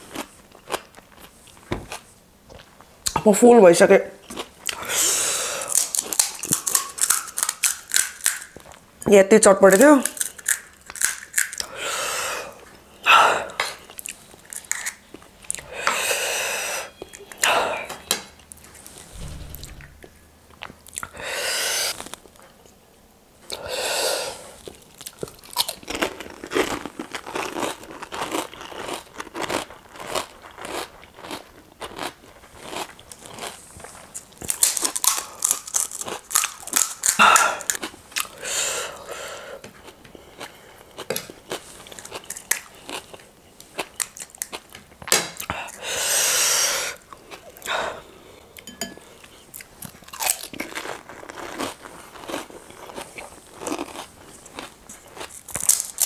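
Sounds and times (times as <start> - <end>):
crisp shells crunching: 50.1 - 56.0.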